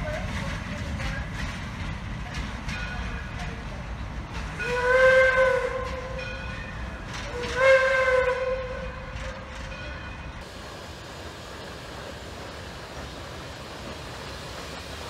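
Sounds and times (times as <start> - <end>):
steam locomotive whistle: 4.6 - 6.4, 7.2 - 9.5.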